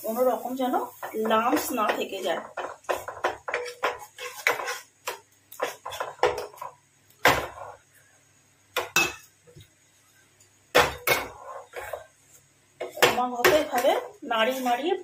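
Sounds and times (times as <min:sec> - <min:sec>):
spatula knocking and scraping pan: 0:00.8 - 0:07.9, 0:10.7 - 0:12.2, 0:12.8 - 0:15.0.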